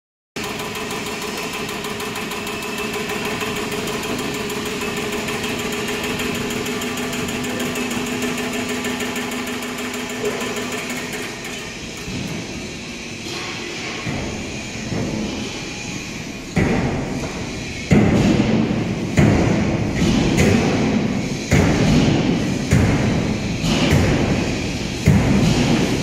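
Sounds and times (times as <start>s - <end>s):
machinery humming: 0.4s - 26.0s.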